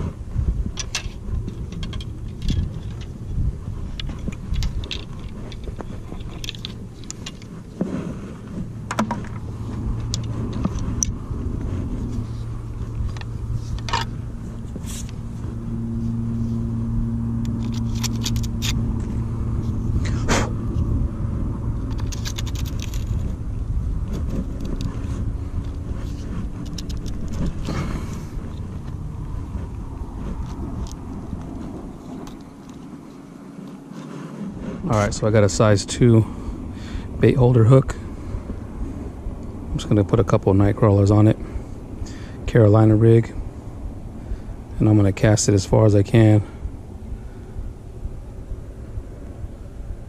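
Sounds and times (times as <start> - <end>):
engine hum: 0.0 - 50.0
low rumble: 0.0 - 50.0
fishing rod and reel clicks: 0.7 - 3.2, 3.8 - 7.5, 17.3 - 18.8, 21.8 - 23.4, 24.0 - 29.0, 30.2 - 34.3.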